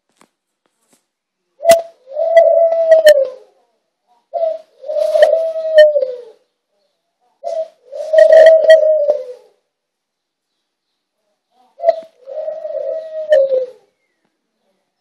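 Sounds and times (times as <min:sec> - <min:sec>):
dove cooing: 0:01.6 - 0:03.6, 0:04.2 - 0:06.5, 0:07.4 - 0:09.7, 0:11.7 - 0:14.0.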